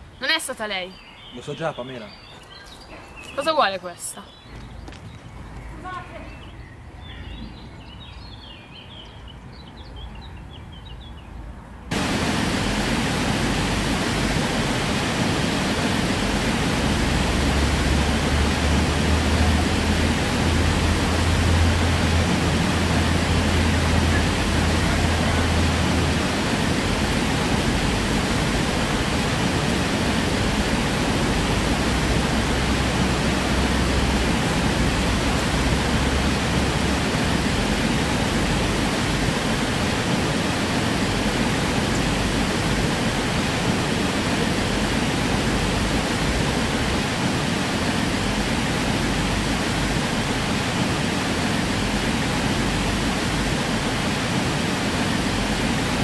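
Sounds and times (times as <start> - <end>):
low rumble: 11.9 - 39.8
steady hiss: 11.9 - 56.0.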